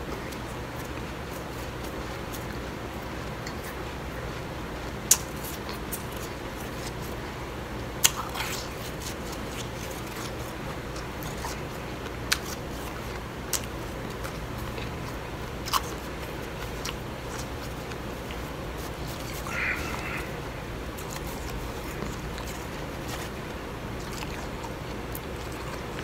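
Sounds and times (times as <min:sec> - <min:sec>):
low background hum: 0:00.0 - 0:26.0.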